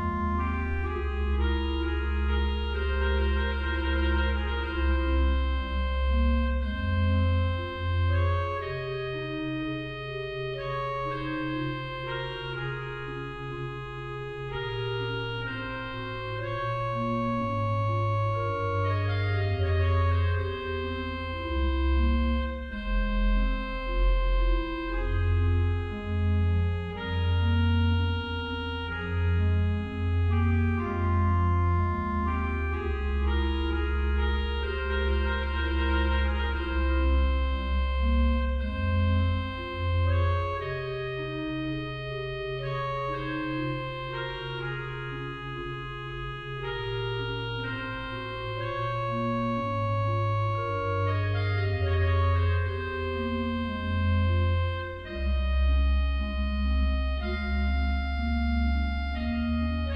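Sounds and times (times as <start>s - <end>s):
pipe organ playing chords: 0.0s - 59.9s.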